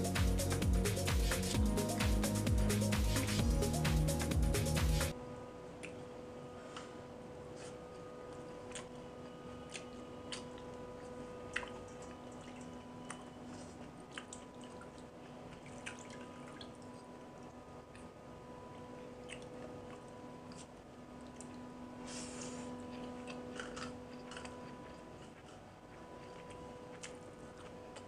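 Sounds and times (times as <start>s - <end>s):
steady hum: 0.0s - 28.0s
water drips and splashes: 14.1s - 17.2s.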